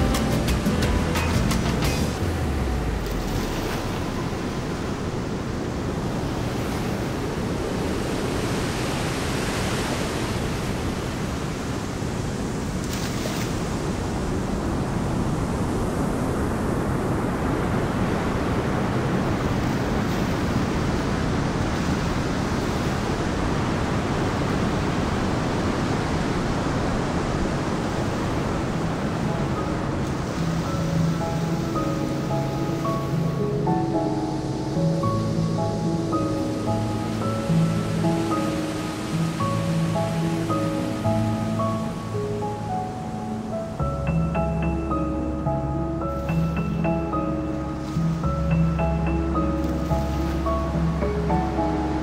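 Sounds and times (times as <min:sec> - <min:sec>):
music: 0:00.0 - 0:05.0, 0:29.1 - 0:52.0
steady rushing noise: 0:00.0 - 0:52.0.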